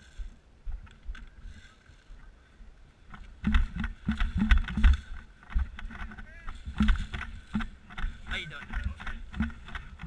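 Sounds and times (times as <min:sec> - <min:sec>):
footsteps: 0:03.1 - 0:10.0
heavy thuds and rattling knocks: 0:03.2 - 0:10.0.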